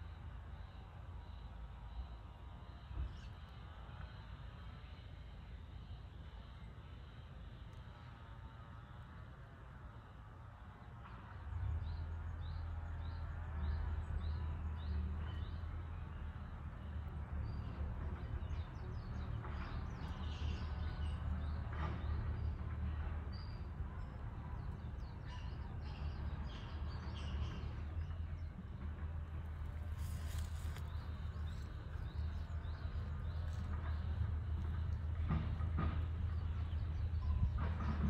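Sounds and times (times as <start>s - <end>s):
steady low rumble: 28.3s - 38.0s.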